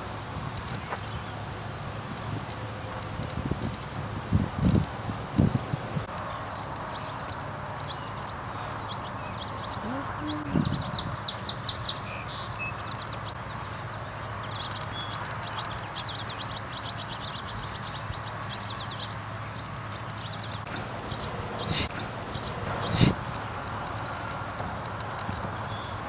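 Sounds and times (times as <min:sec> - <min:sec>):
swallows twittering: 0:06.3 - 0:23.2
steady background hum: 0:19.5 - 0:24.9.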